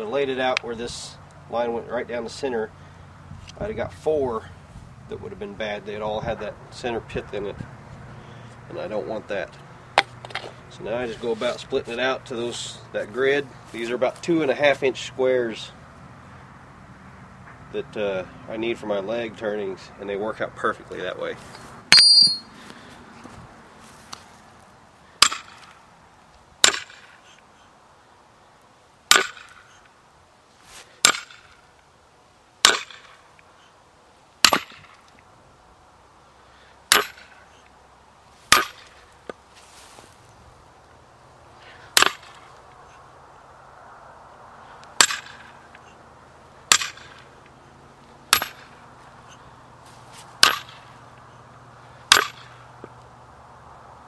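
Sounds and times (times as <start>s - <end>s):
hammer striking steel wedge: 21.9s - 22.5s, 25.2s - 25.6s, 26.6s - 27.0s, 29.1s - 29.5s, 31.0s - 31.4s, 32.6s - 33.1s, 34.4s - 34.9s, 36.9s - 37.4s, 38.5s - 38.9s, 42.0s - 42.4s, 45.0s - 45.5s, 46.7s - 47.2s, 48.3s - 48.7s, 50.4s - 50.8s, 52.1s - 52.5s.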